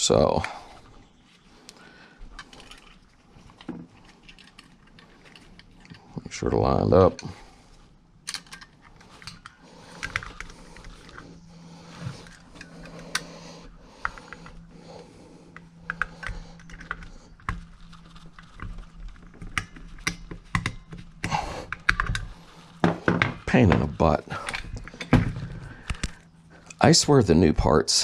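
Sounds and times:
metallic clicks and scrapes: 0:02.3 - 0:06.2.

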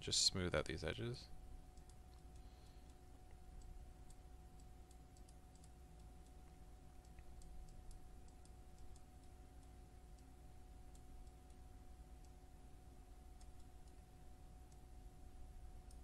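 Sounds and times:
low electrical hum: 0:00.0 - 0:16.0
computer mouse clicks: 0:01.7 - 0:12.5, 0:13.3 - 0:14.9, 0:15.8 - 0:16.0.

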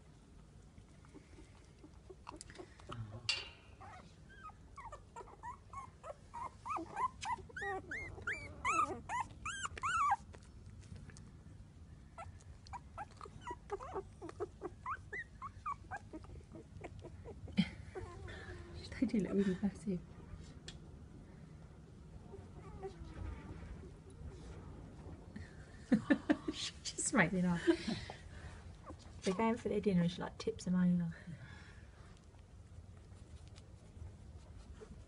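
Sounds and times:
puppies squeaking and whimpering: 0:03.8 - 0:10.4, 0:12.2 - 0:18.7.

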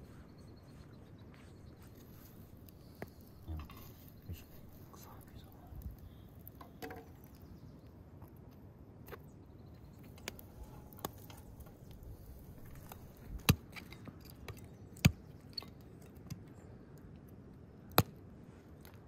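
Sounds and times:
faint steady background noise: 0:00.0 - 0:19.0
firewood and samovar knocks and clinks: 0:03.0 - 0:04.3, 0:06.5 - 0:07.4, 0:10.0 - 0:16.5.

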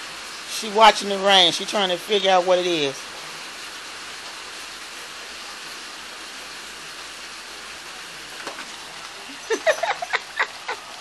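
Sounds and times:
steady rain falling: 0:00.0 - 0:11.0.

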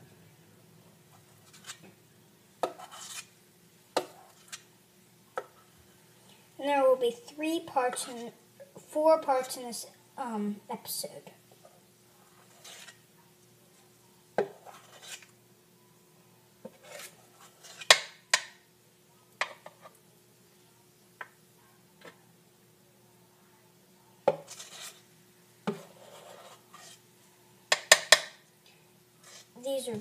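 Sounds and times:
spoon scraping metal bowl: 0:02.7 - 0:03.3, 0:07.9 - 0:08.4, 0:12.4 - 0:13.0, 0:14.5 - 0:15.3, 0:16.7 - 0:18.0, 0:24.4 - 0:25.0, 0:25.7 - 0:27.0, 0:29.2 - 0:29.6.

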